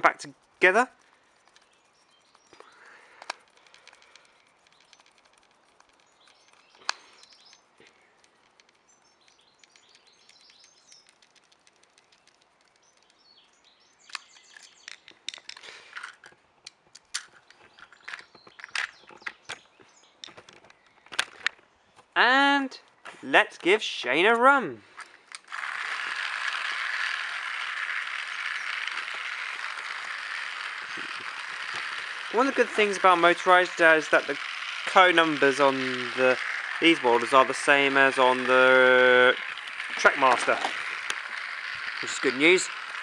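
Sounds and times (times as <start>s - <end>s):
screwdriver clicks and scraping: 30.8s - 33.0s.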